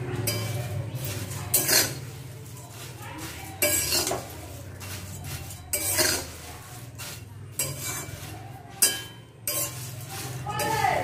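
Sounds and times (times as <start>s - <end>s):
metal spatula scraping: 0.0s - 11.0s.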